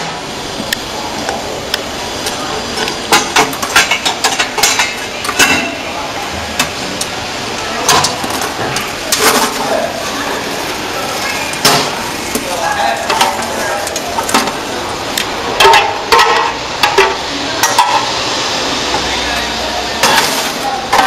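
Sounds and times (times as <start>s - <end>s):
popcorn rustling and spilling: 8.0s - 16.6s, 20.0s - 21.0s.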